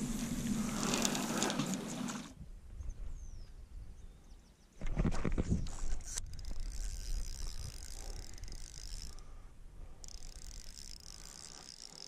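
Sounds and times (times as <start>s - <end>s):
fishing reel winding: 5.8s - 9.4s, 10.0s - 12.0s.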